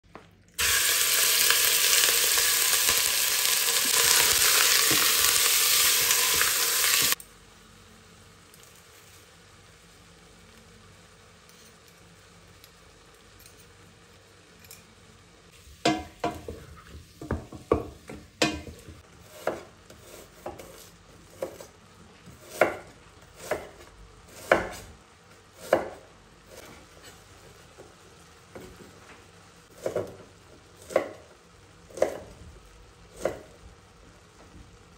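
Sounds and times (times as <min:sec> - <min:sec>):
meat sizzling in hot oil: 0:00.6 - 0:07.2.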